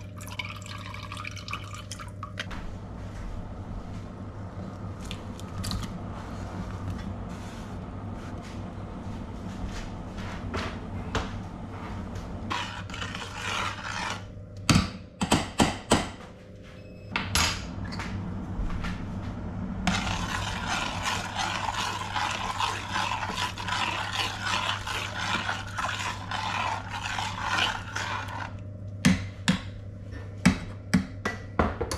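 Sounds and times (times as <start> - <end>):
low steady hum: 0.0 - 31.9
spoon scraping saucepan: 12.5 - 14.3, 19.9 - 28.6.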